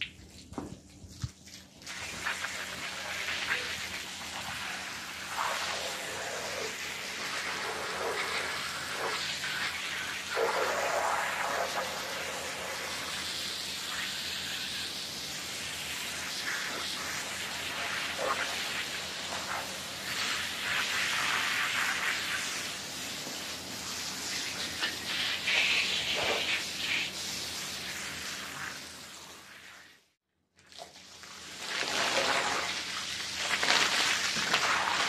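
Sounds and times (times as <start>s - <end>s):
water splashing on rug: 0.0s - 12.2s, 30.6s - 35.0s
pressure washer spray hissing: 1.9s - 29.6s, 31.4s - 35.0s.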